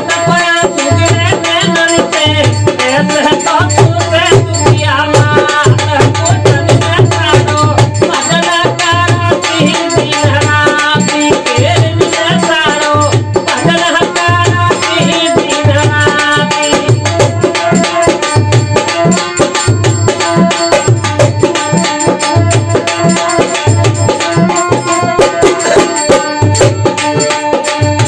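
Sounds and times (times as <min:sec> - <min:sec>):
dholak drum beat: 0:00.0 - 0:28.0
harmonium melody: 0:00.0 - 0:28.0
rattling hand percussion: 0:00.0 - 0:28.0.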